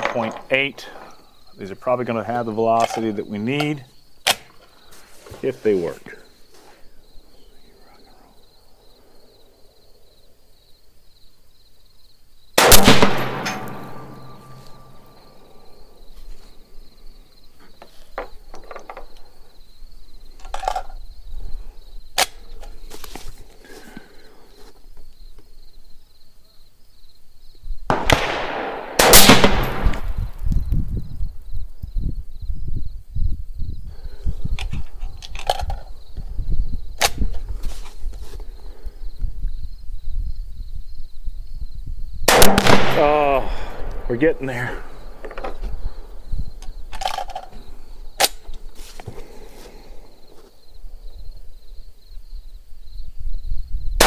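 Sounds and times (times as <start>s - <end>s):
rifle clicking and clattering: 2.8s - 4.6s, 12.6s - 14.8s, 20.4s - 21.0s, 34.6s - 35.9s, 46.6s - 47.6s, 48.2s - 49.1s
wind rumble on microphone: 29.8s - 42.3s, 52.3s - 54.0s
cartridge loading clicks: 46.6s - 47.6s.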